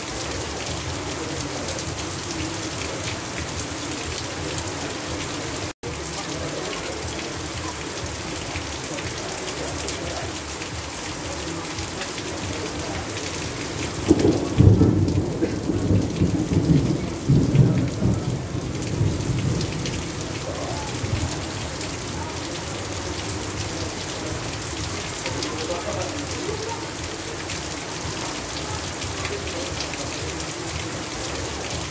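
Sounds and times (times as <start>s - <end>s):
heavy rain falling: 0.0s - 31.9s
thunder rumbling: 13.7s - 22.1s.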